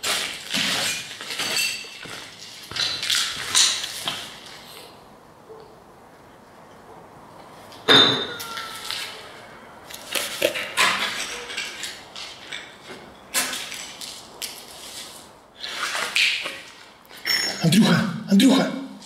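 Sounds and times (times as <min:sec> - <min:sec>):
footsteps crunching over rubble: 0:00.0 - 0:04.6.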